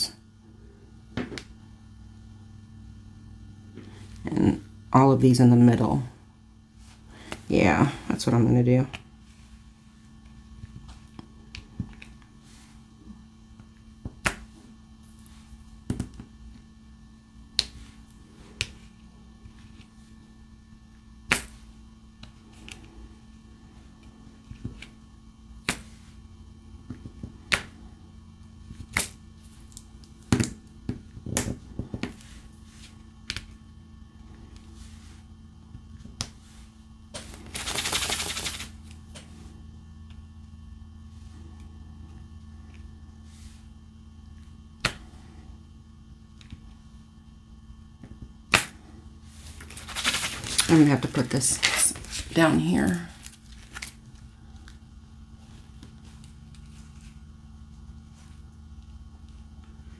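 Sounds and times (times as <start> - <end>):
low steady hum: 0.0 - 59.9.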